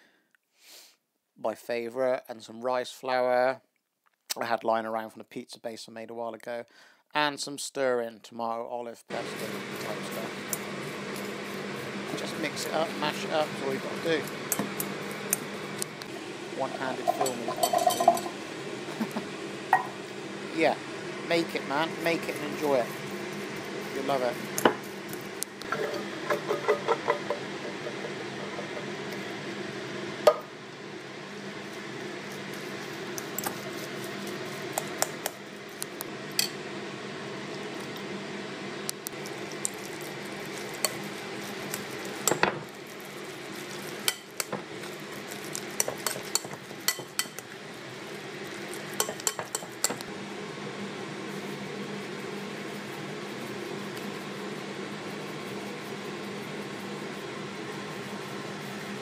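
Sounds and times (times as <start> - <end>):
steady low hum: 9.0 - 59.0
fork scraping a glass bowl: 45.8 - 47.4.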